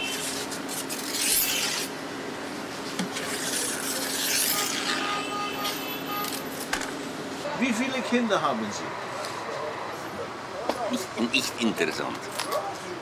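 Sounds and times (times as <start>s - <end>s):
blade rasping through pastry dough: 0.0s - 2.0s.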